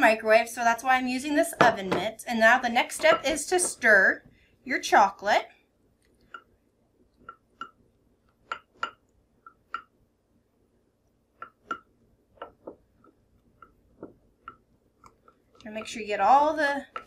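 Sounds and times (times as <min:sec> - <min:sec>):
spatula tapping glass bowl: 0:07.2 - 0:07.8, 0:08.4 - 0:09.9, 0:11.4 - 0:12.8.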